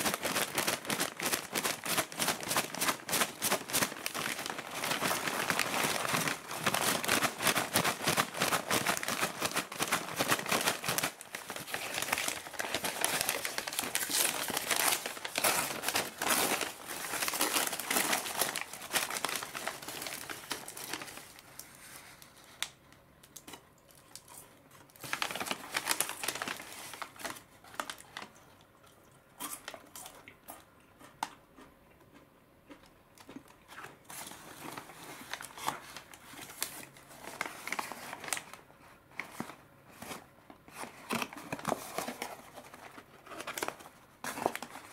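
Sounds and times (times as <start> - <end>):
paper bag crinkling: 0.0 - 22.8, 24.9 - 28.4, 34.1 - 38.6.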